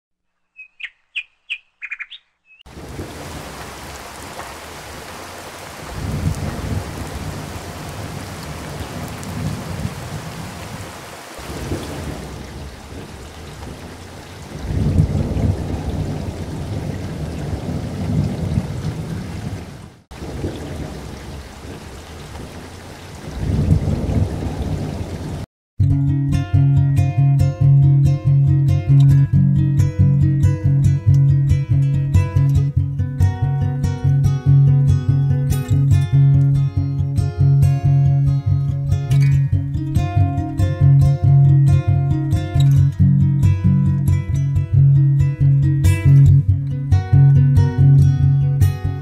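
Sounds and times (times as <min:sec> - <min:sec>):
low thunder rumbles: 0:02.7 - 0:05.0, 0:05.6 - 0:25.4
steady rain falling: 0:02.7 - 0:25.5.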